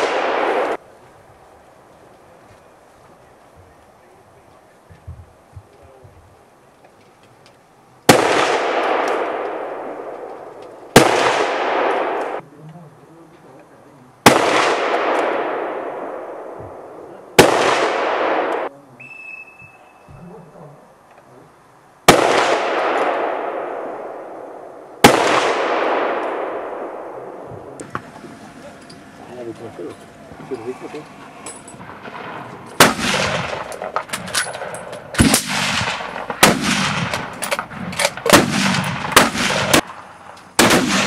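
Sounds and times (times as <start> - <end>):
rifle shots with echo: 0.0 - 0.8, 8.1 - 12.4, 14.2 - 18.7, 22.0 - 28.1, 31.6 - 41.0.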